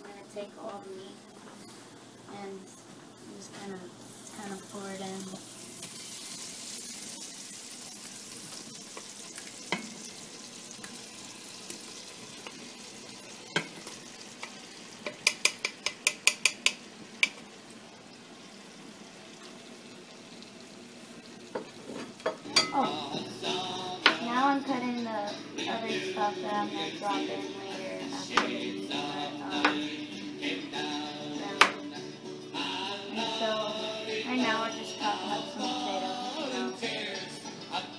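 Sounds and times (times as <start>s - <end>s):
meat sizzling in a pot: 0.0s - 37.9s
wooden spoon tapping: 15.0s - 17.4s.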